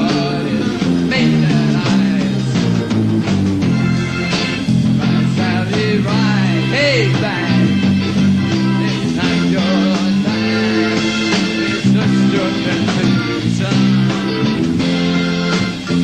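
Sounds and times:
singer's voice gliding in pitch: 0.0 - 2.7, 5.0 - 7.7, 8.8 - 14.2
live rock band playing: 0.0 - 16.0.

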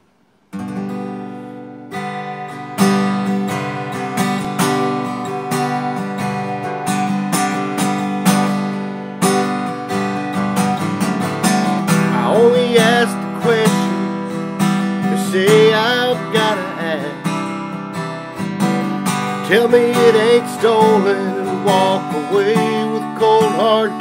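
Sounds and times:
acoustic guitar strumming: 0.0 - 24.0
man singing: 11.9 - 17.4, 19.3 - 24.0.

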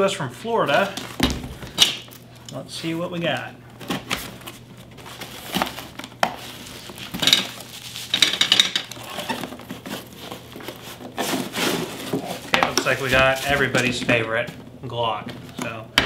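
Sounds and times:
rustling: 3.7 - 14.2
cardboard flaps scraping: 9.0 - 14.5.

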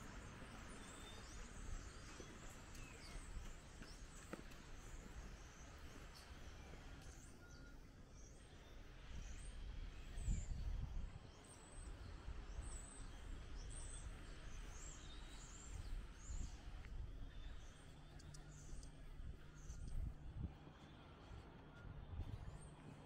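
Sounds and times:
small birds chirping: 0.0 - 21.4
wind buffeting microphone: 9.0 - 21.1.

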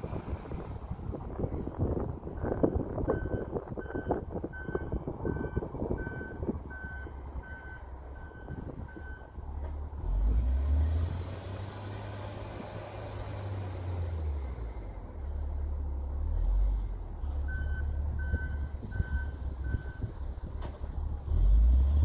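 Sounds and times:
wind buffeting microphone: 0.0 - 9.5, 18.0 - 21.3.

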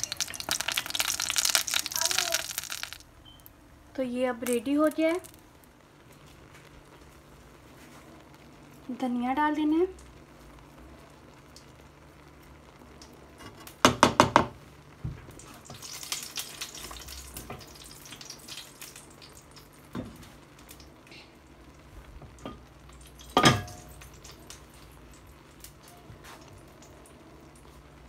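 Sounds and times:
light crackling sizzle: 0.0 - 28.0
utensil clinking on cooking pot: 22.4 - 24.0.

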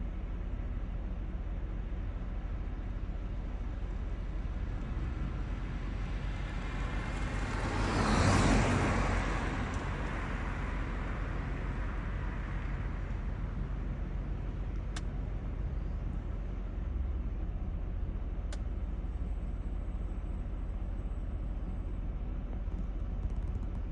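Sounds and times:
road traffic hum: 0.0 - 23.9
vehicle passing: 6.9 - 9.8.

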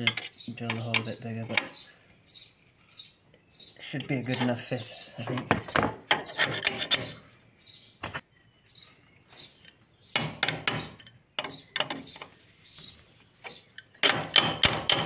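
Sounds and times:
small birds chirping: 0.0 - 15.0
spanner clinking on metal: 10.4 - 12.0.

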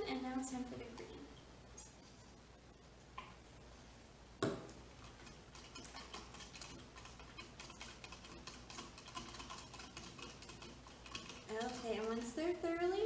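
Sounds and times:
straw clicking against cup: 5.0 - 12.3.

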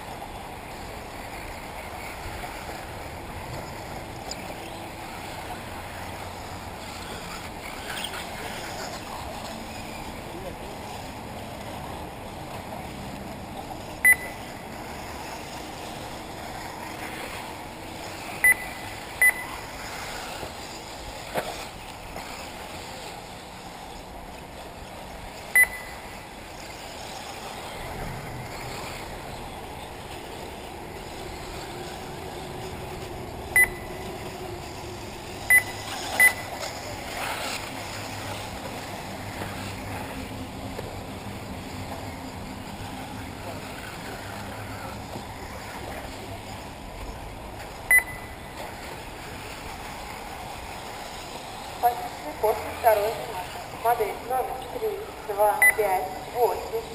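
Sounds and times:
steady outdoor hiss: 0.0 - 56.9
short electronic beeps: 14.0 - 14.5, 18.4 - 19.6, 25.5 - 26.2, 33.6 - 34.1, 35.5 - 36.7, 47.9 - 48.4, 55.6 - 55.9.

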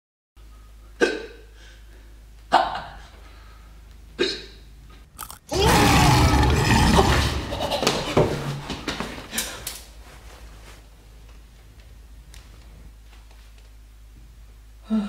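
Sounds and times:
man hiccuping: 1.0 - 1.5, 4.2 - 4.6
loud noisy sound: 5.2 - 7.8.

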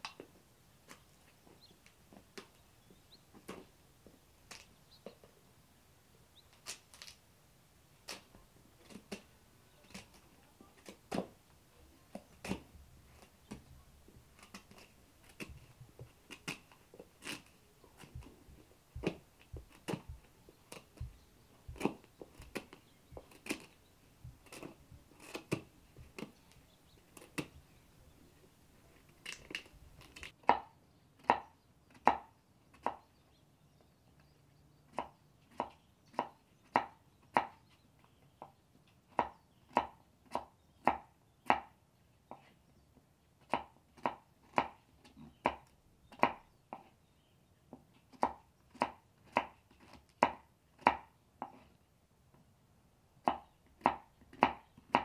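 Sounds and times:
knife cutting pumpkin: 12.1 - 13.7, 14.4 - 18.3, 21.7 - 23.8, 24.4 - 26.4, 48.1 - 51.7.

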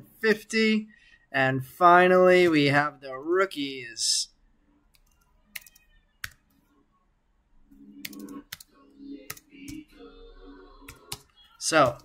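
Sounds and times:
keyboard keystrokes: 5.0 - 6.4, 8.0 - 8.7.

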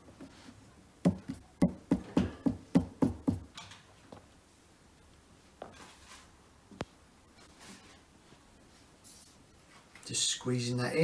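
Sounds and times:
hand knocking on shelf panel: 1.0 - 3.5.

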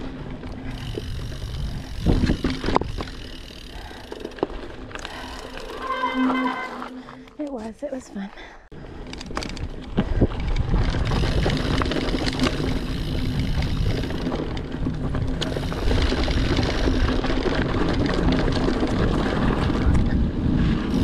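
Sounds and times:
wind buffeting microphone: 0.0 - 3.2, 8.8 - 21.0
bike clicks and rattles: 0.0 - 7.7, 8.7 - 21.0
bike tyres on dirt trail: 0.0 - 21.0.

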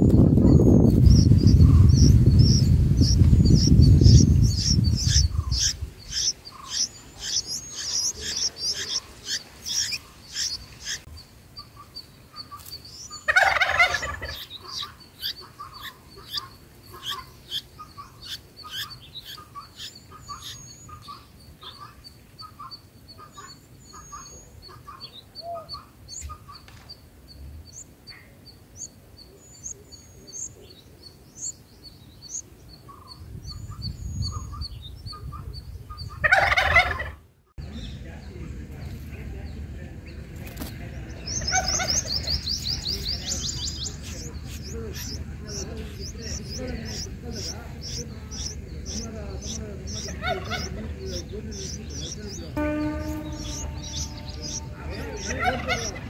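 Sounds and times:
harsh chattering bird call: 0.0 - 26.7, 41.0 - 56.0
nestlings chirping: 0.0 - 36.8, 37.6 - 56.0.

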